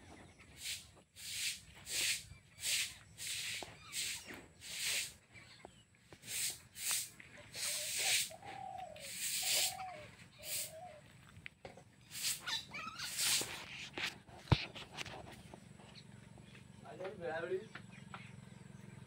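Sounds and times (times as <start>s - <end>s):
short arched animal calls: 0.6s - 5.1s, 6.3s - 11.0s, 12.1s - 13.6s
brief hissing rustles: 0.6s - 5.2s, 6.2s - 8.4s, 9.0s - 10.8s, 12.1s - 14.9s.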